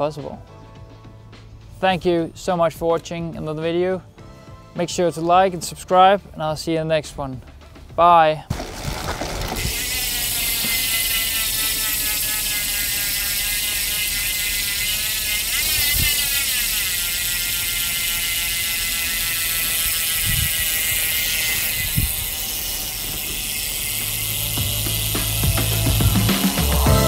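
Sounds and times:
bicycle freehub ticking whir: 8.5 - 27.0.

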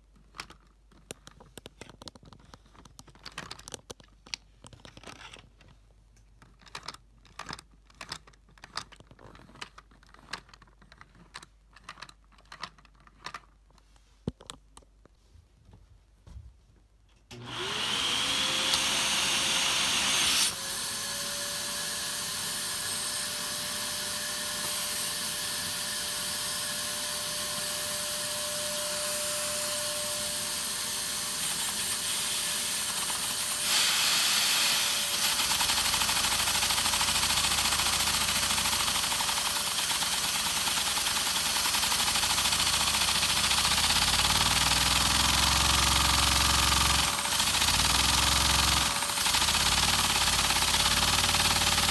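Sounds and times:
vacuum cleaner motor whine: 17.3 - 51.9.

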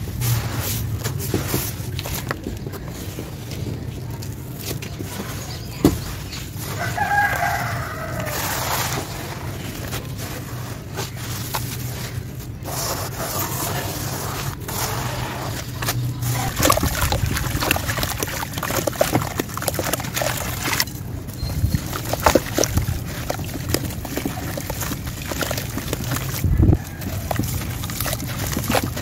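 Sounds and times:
hands crunching damp sand mix: 0.0 - 29.0.

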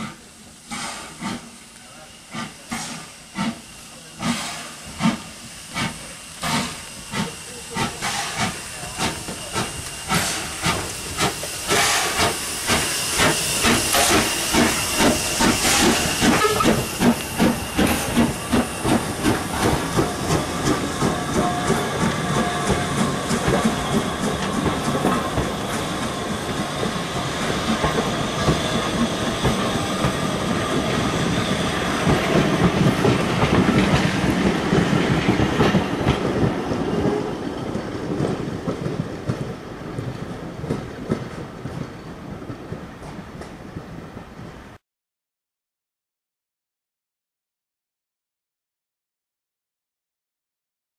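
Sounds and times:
steam hissing: 0.0 - 39.2
steam locomotive exhaust beats: 0.0 - 44.8.

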